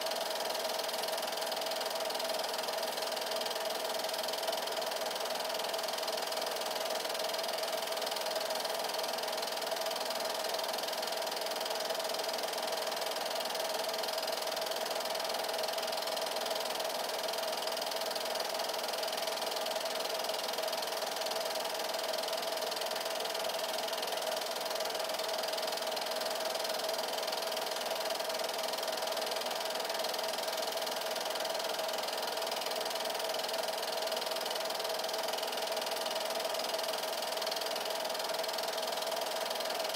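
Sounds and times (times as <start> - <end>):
film projector running: 0.0 - 39.9.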